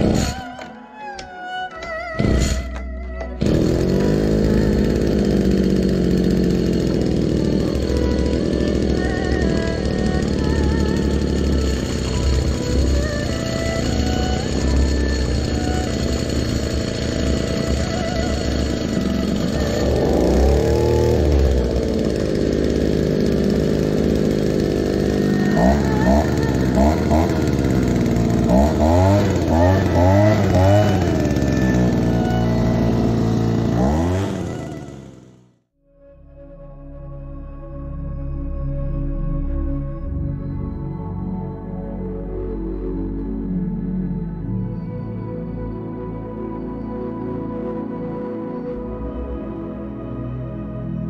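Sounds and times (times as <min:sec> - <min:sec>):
leaf blower engine running: 0:00.0 - 0:35.6
pull-cord starter: 0:00.0 - 0:35.6.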